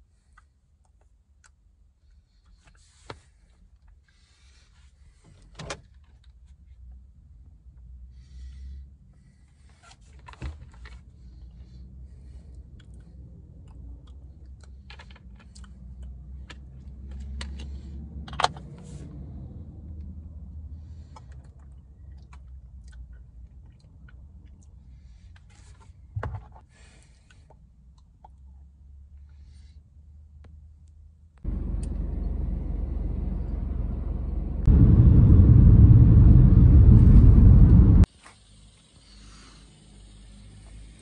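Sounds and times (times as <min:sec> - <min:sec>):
steady low hum: 0:27.2 - 0:41.0.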